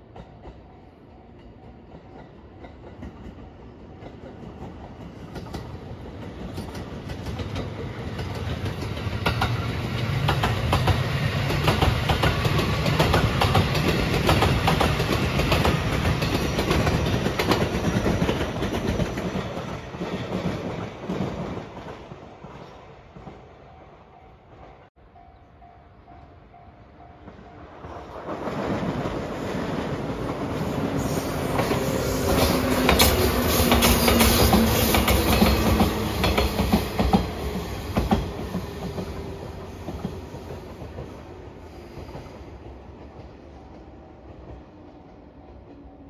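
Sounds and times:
electric train passing: 0.0s - 46.0s
train wheels clacking over rail joints: 1.5s - 22.0s, 31.5s - 41.2s.

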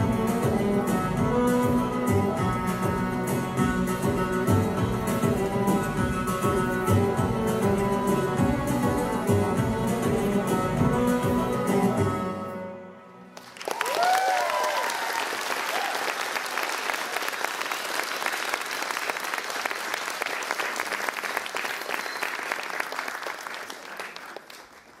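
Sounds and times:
audience applauding: 13.4s - 25.0s.

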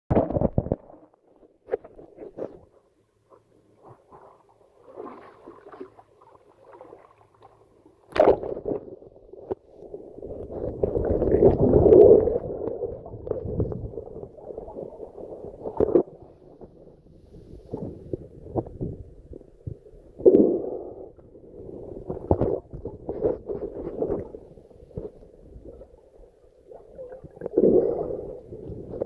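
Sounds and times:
splash into water: 8.1s - 8.9s
underwater rushing and gurgling: 8.2s - 29.0s.

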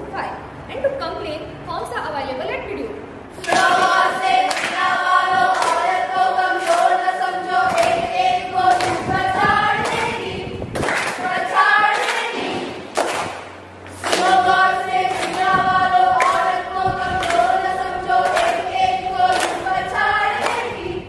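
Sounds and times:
hands clapping: 3.4s - 4.9s, 5.5s - 6.0s, 6.6s - 10.2s, 10.8s - 16.6s, 17.2s - 20.8s
group singing in unison: 3.4s - 13.2s, 13.9s - 21.0s.

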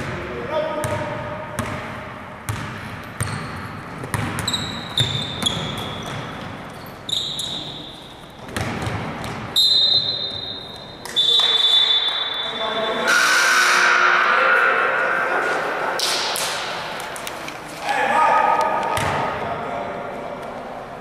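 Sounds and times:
basketball bouncing on gym floor: 0.8s - 6.6s, 8.4s - 9.6s, 19.0s - 19.3s
high squeaks: 4.4s - 8.2s.

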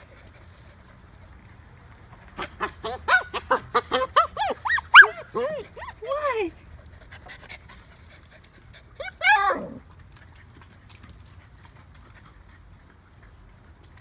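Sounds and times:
puppy yipping: 2.4s - 6.4s, 9.0s - 9.8s.

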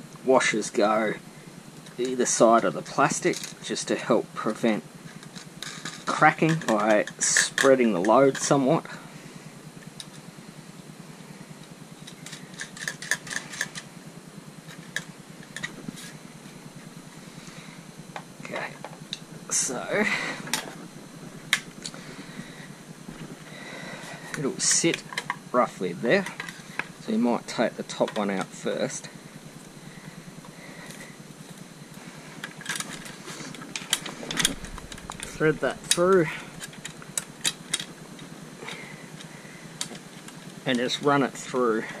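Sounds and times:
steady background hiss: 0.0s - 42.0s
steady low hum: 0.0s - 42.0s
screwdriver and hand work: 12.0s - 13.9s
small metal clicks and clinks: 12.0s - 13.9s.

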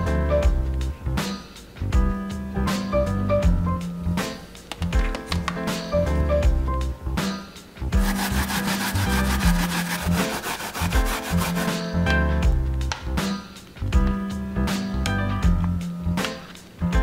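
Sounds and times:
light background music: 0.0s - 17.0s
pear rasping on grater: 8.0s - 11.8s.

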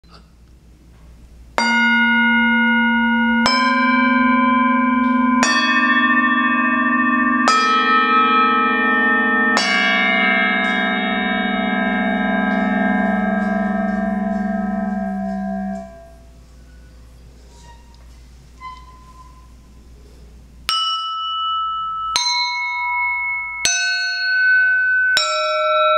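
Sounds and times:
flat gongs struck ringing: 1.6s - 16.5s, 20.7s - 25.9s.

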